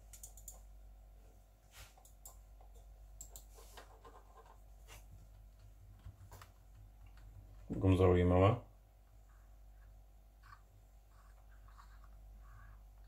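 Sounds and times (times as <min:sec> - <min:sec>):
mouse clicks: 0:00.1 - 0:00.6, 0:03.2 - 0:03.5
mouse rubbing on desk: 0:03.4 - 0:05.1, 0:09.3 - 0:12.8.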